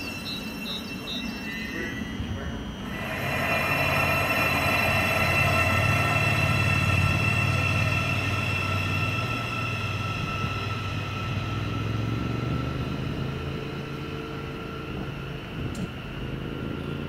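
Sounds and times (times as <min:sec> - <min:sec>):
electric train whine and hum: 0:00.0 - 0:17.0.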